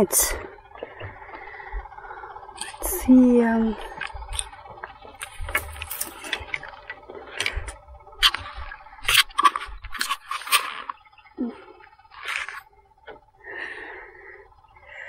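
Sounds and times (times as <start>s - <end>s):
faint steady whine: 0.0s - 15.0s
noisy bursts: 0.0s - 15.0s
scrapes clicks and rustles of handling fish: 3.9s - 11.0s.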